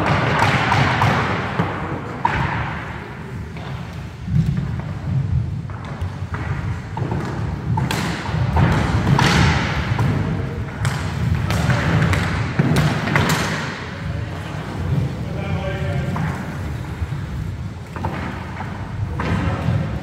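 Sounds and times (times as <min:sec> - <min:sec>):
skate wheels rumbling: 0:00.0 - 0:20.0
sticks and ball clacking: 0:05.6 - 0:14.0.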